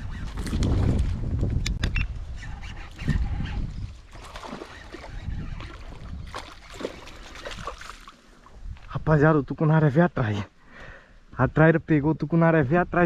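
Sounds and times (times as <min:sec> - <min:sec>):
low wind rumble on microphone: 0:00.0 - 0:07.9.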